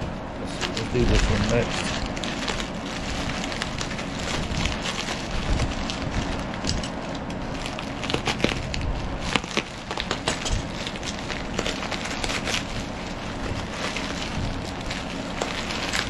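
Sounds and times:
air conditioner and fan hum: 0:00.0 - 0:16.0
bubble wrap crinkling: 0:00.0 - 0:16.0.

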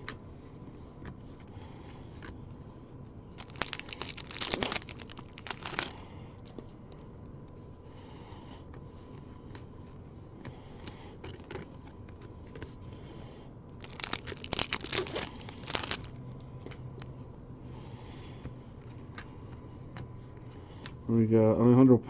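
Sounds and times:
packaging crinkling: 0:03.3 - 0:06.0, 0:13.8 - 0:16.4
trading cards flipped through: 0:03.4 - 0:06.0.

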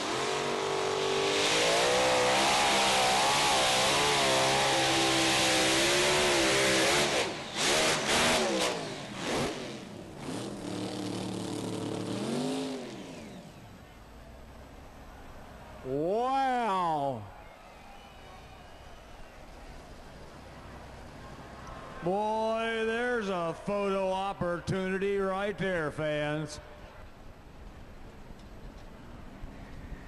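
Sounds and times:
engine winding down: 0:01.3 - 0:13.8.

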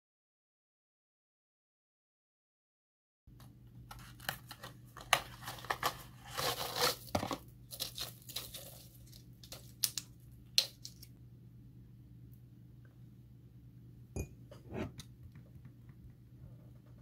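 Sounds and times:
foil blister pack crinkling: 0:03.9 - 0:11.1.

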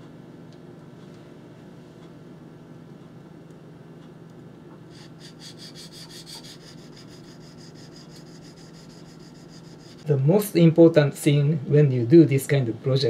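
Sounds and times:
knife scraping on whetstone: 0:05.0 - 0:10.0.

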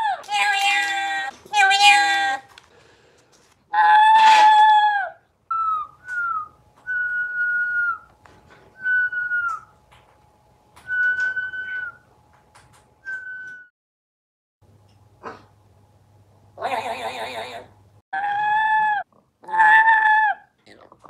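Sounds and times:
parrot whistling calls: 0:05.5 - 0:08.1, 0:08.8 - 0:09.7, 0:10.9 - 0:12.1.

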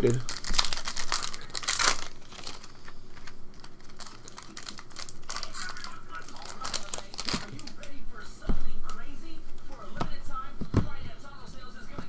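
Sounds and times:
foil wrapper crinkling: 0:00.0 - 0:08.0.

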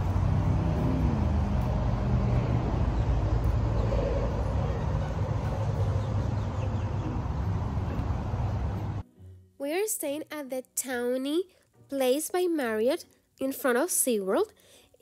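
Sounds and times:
engine tone dropping in pitch: 0:00.0 - 0:09.0
road traffic rumble: 0:00.0 - 0:09.0.

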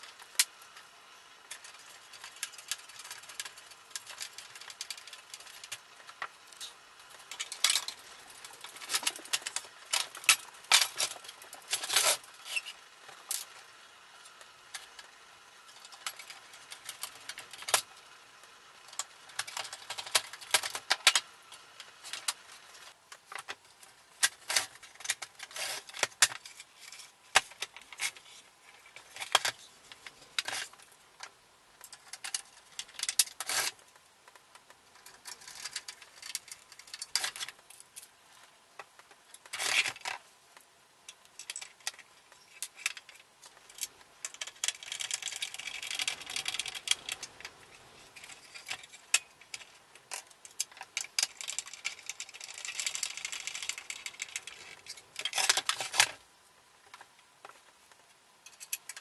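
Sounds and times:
plastic and tools clicking and rattling: 0:00.0 - 0:59.0.

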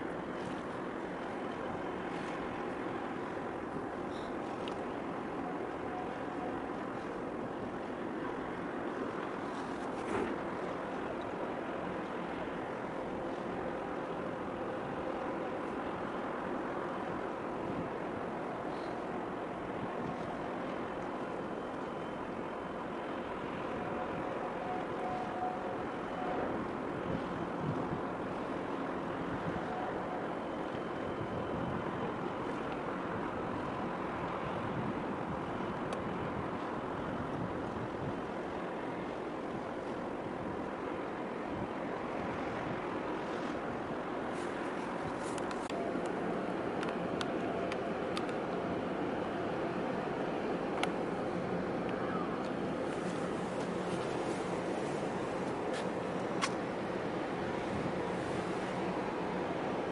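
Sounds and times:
faint ship hum: 0:00.0 - 0:59.9
harbour water washing: 0:00.0 - 0:59.9
wind: 0:00.0 - 0:59.9
wind on microphone: 0:26.5 - 0:28.5, 0:31.0 - 0:45.8, 0:50.8 - 0:59.9.

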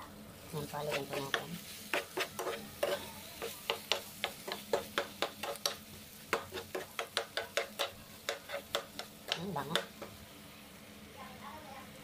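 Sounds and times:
spatula scraping a frying pan: 0:00.8 - 0:10.1.

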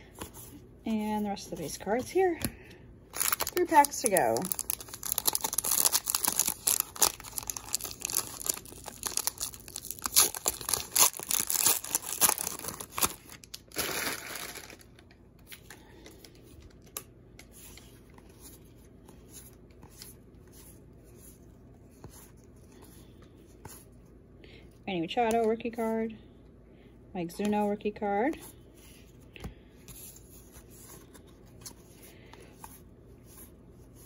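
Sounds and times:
wrapper crinkling and tearing: 0:03.1 - 0:15.0.

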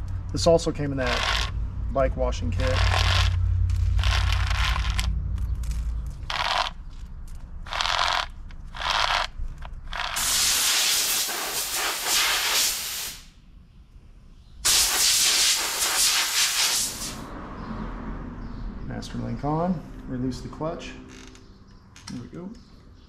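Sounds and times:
compressed air blasts: 0:10.2 - 0:13.3, 0:14.6 - 0:17.2.

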